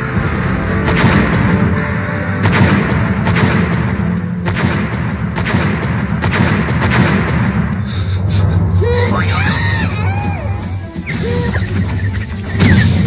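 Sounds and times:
explosive charges banging: 0.0 - 7.9.

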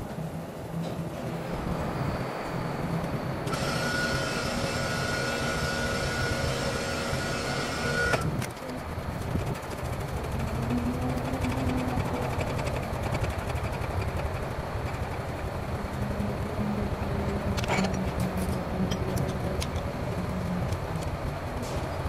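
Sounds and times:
high whine: 0.0 - 22.0
power tool whirring: 3.4 - 8.5.

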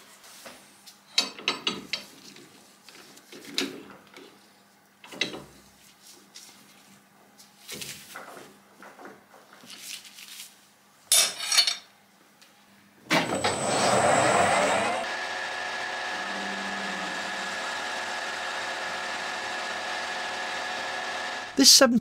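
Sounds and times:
lathe running with a whine: 13.2 - 21.6.

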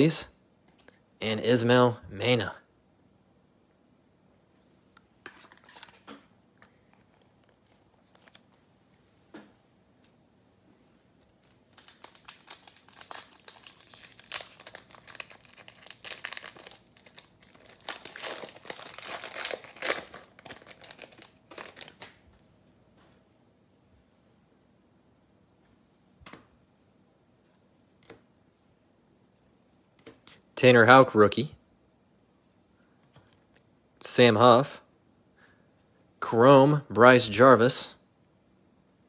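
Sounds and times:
foil wrapper crinkling: 11.4 - 22.2.

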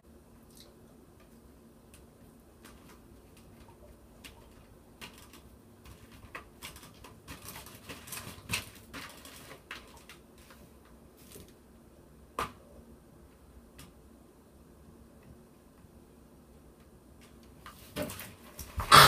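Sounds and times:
plastic tray clicking and crinkling: 4.2 - 10.5.

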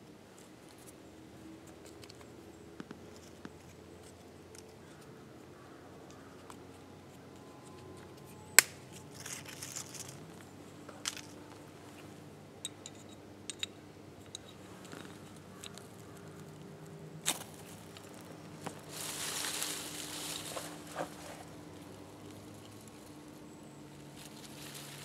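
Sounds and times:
tinder catching with rustling hiss: 17.2 - 22.4
fire-starting rod scraping: 18.9 - 21.6.

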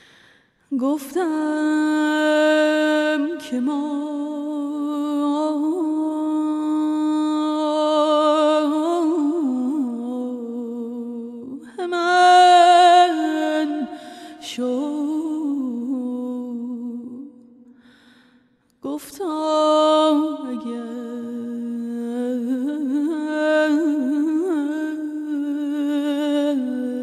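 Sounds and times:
woman singing melismatic phrases: 0.7 - 17.6, 18.8 - 27.0.

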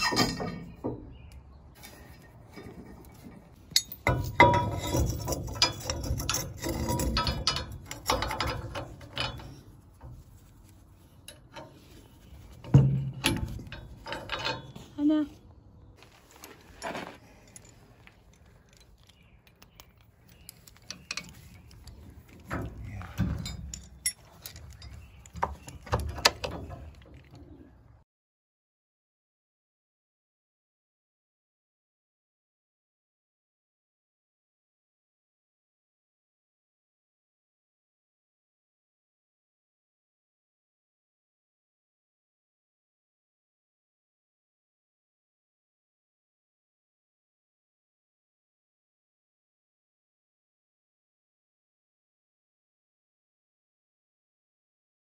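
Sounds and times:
metal hardware clanking: 1.8 - 15.3, 16.4 - 27.5
metal scraping and rattling: 1.8 - 15.3, 16.0 - 27.6.

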